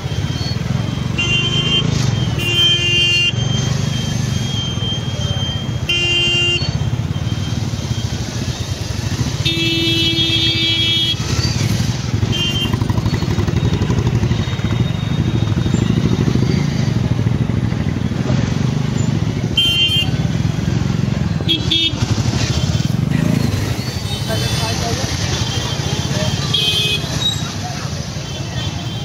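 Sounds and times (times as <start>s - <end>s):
motorcycle engines running: 0.0s - 29.0s
vehicle horn: 1.2s - 3.4s, 5.8s - 6.8s, 9.4s - 11.4s, 12.2s - 12.9s, 19.6s - 20.3s, 25.4s - 27.2s
people chattering: 24.1s - 29.0s.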